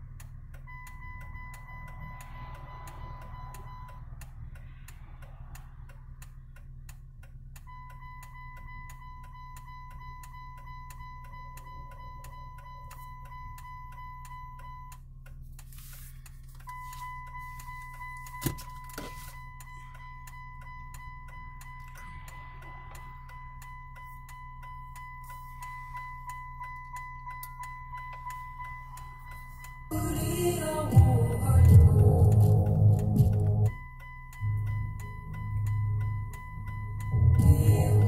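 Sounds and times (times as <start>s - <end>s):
low hum: 19.4s - 38.0s
high electronic tone: 27.8s - 38.0s.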